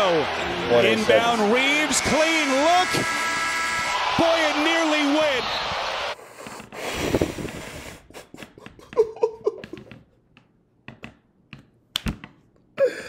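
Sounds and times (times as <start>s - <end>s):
man exhaling breathily: 6.3s - 8.2s.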